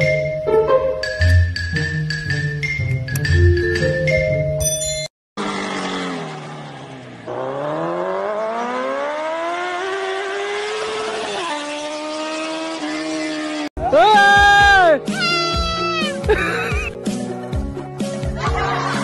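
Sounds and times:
vehicle engine revving: 0:05.4 - 0:13.7.

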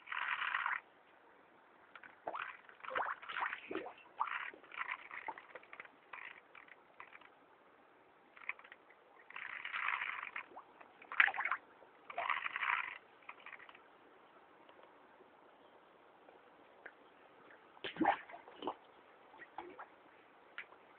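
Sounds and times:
fish slurping and splashing: 0:00.0 - 0:00.8, 0:02.2 - 0:07.3, 0:08.4 - 0:13.8.

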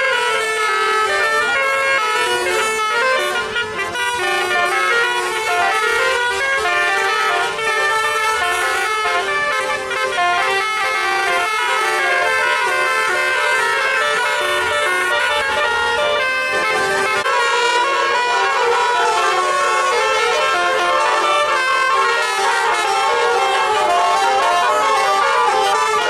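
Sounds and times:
bus horn playing tune: 0:00.0 - 0:26.0.

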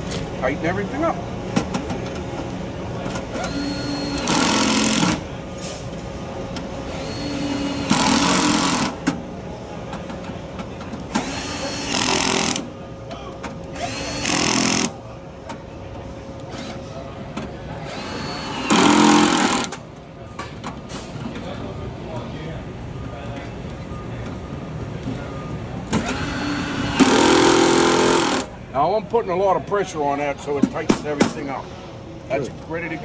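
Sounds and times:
cordless drill driving screws: 0:17.9 - 0:19.8, 0:26.0 - 0:28.5.

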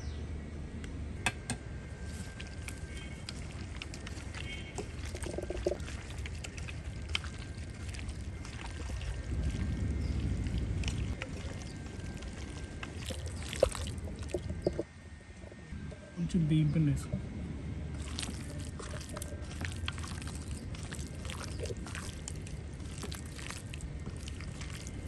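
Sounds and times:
low rumble: 0:01.8 - 0:16.2
hand squelching raw meat: 0:02.0 - 0:14.9, 0:17.9 - 0:25.0.

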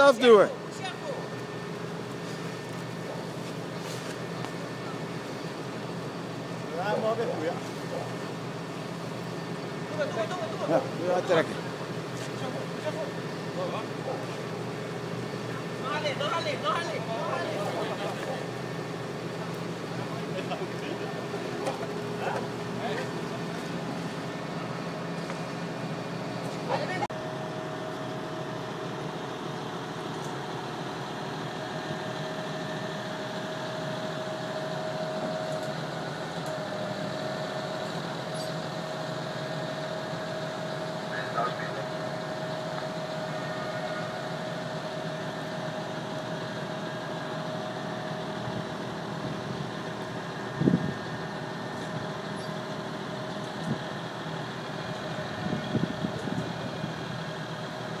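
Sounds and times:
steady whine: 0:00.0 - 0:58.0
tractor engine running: 0:00.0 - 0:58.0.

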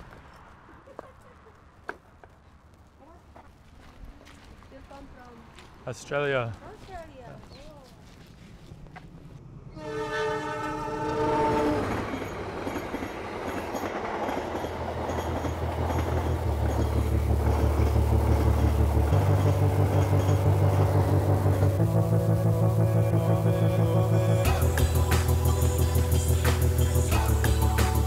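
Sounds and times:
train passing: 0:00.0 - 0:28.0
train horn chord: 0:09.7 - 0:12.0, 0:16.4 - 0:27.3
low droning music: 0:15.5 - 0:28.0.

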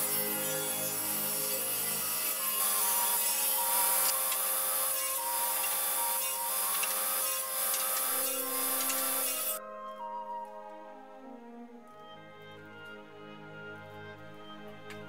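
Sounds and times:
table saw cutting wood: 0:00.0 - 0:09.6.

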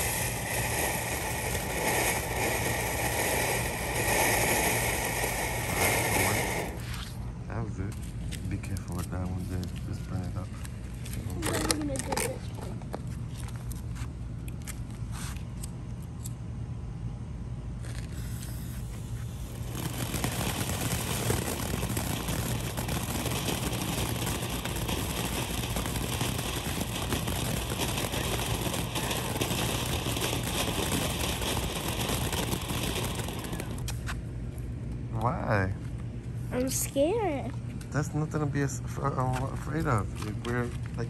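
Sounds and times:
fountain firework crackling hiss: 0:00.0 - 0:07.2, 0:17.8 - 0:34.0, 0:38.4 - 0:41.0.

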